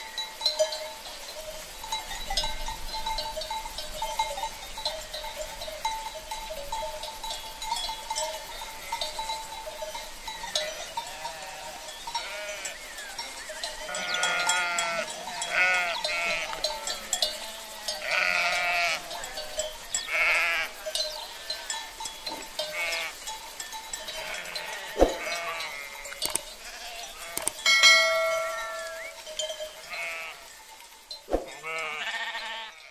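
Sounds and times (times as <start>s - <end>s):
sheep bleating: 10.8s - 12.8s, 13.9s - 20.8s, 22.6s - 23.2s, 24.1s - 27.5s, 29.8s - 30.5s, 31.5s - 32.9s.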